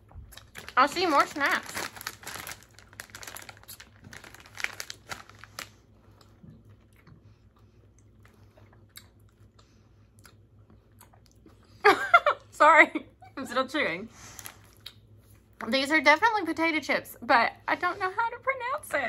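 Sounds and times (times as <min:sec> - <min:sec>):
plastic chip bag crinkling: 0:00.3 - 0:05.9.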